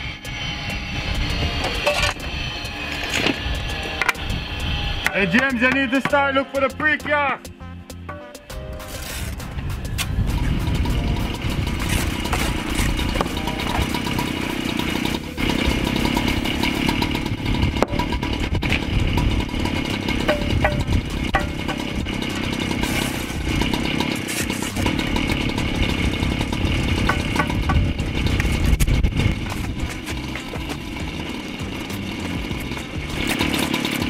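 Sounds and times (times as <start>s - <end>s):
wind buffeting microphone: 0.7s - 5.1s, 9.3s - 23.8s, 24.8s - 33.2s.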